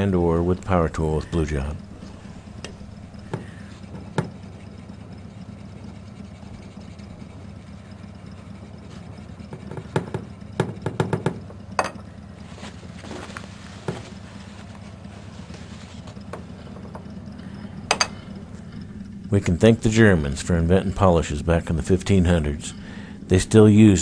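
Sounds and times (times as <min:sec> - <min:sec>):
cloth rubbing metal pipe: 0:00.0 - 0:10.6, 0:12.0 - 0:20.0
steady low hum: 0:00.0 - 0:24.0
knocks against wooden table: 0:09.6 - 0:12.0.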